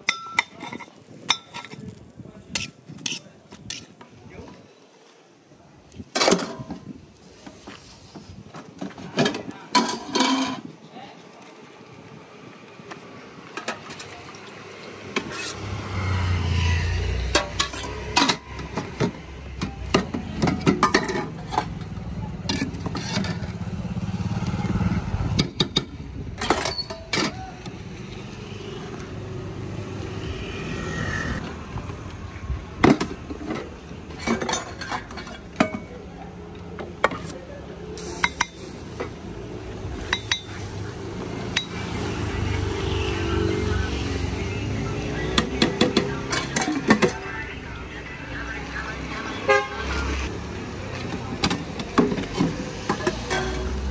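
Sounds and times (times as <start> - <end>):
steel pots and plates clinking: 0.0 - 1.8, 20.4 - 21.7, 34.2 - 35.9, 40.0 - 40.6
traffic rumbling: 11.8 - 53.9.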